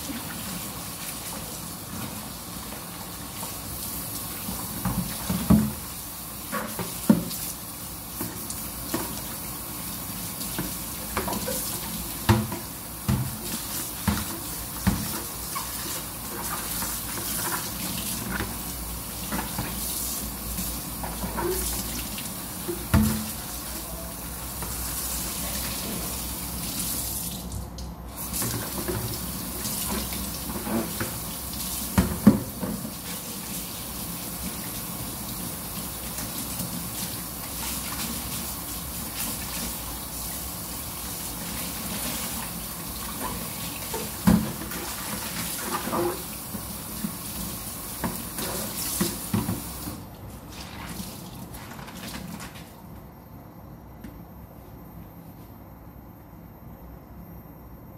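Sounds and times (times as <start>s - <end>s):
tap running into sink: 4.5s - 5.9s, 10.5s - 18.6s, 22.6s - 23.4s, 32.0s - 33.0s.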